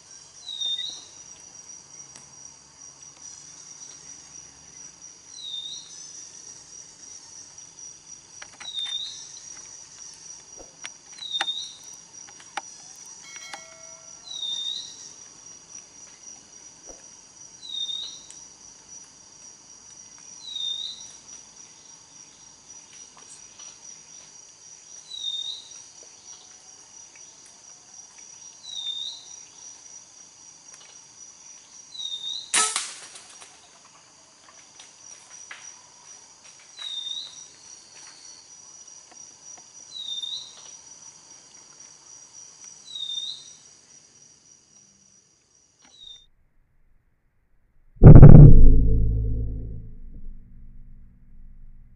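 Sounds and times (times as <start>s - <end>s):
air rifle shot: 48.0s - 51.9s.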